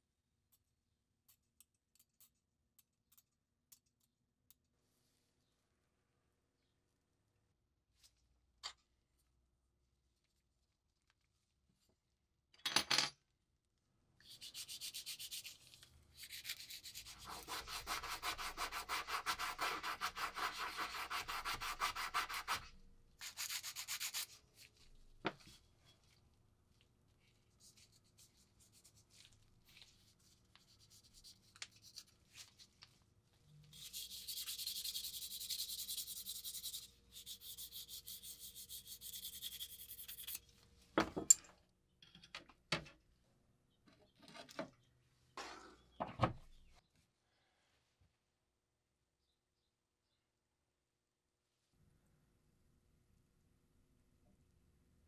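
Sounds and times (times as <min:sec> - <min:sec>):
sanding stick rubbing metal: 0:14.3 - 0:22.6, 0:33.7 - 0:40.4.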